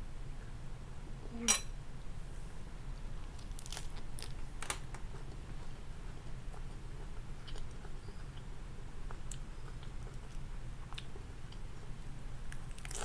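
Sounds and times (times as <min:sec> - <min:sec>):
steady low hum: 0:00.0 - 0:13.0
crunching lettuce: 0:03.2 - 0:05.4, 0:12.5 - 0:13.0.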